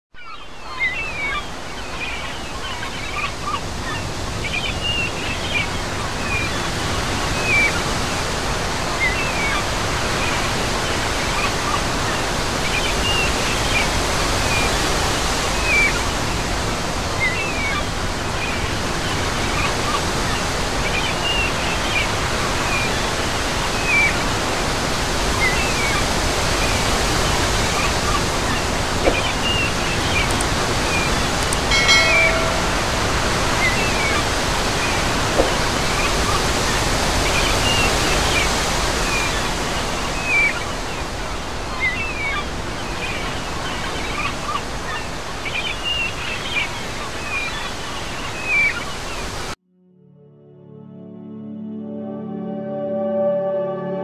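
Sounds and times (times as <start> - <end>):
small waves breaking on sand: 1.4 - 49.6
short high chirps: 31.6 - 34.2
brief pitched call: 31.7 - 34.0.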